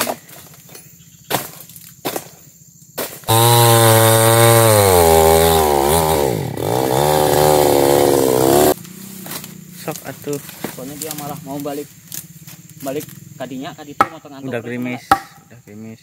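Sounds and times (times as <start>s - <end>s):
chainsaw cutting wood: 3.0s - 9.6s.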